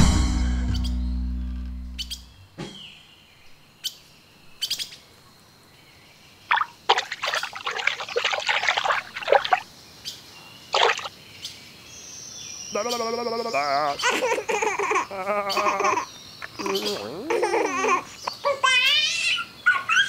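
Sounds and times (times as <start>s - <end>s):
birds chirping: 6.2s - 20.0s
water splashing: 6.5s - 9.7s, 10.7s - 11.2s.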